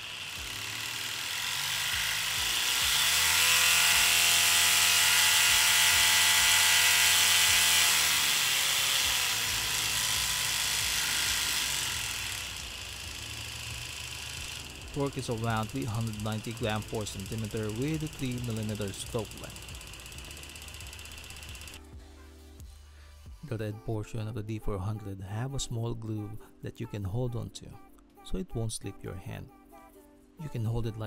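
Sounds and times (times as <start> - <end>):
electric sander motor whining: 0.0 - 21.8.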